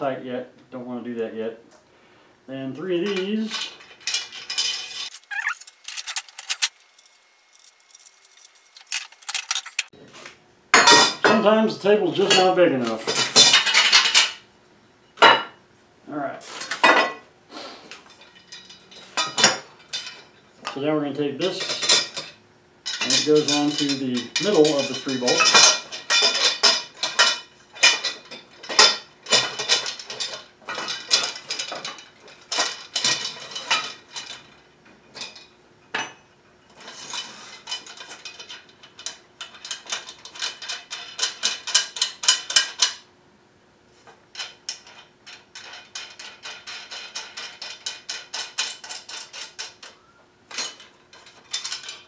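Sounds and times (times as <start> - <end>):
bolts clinking against metal rails: 21.5 - 34.5.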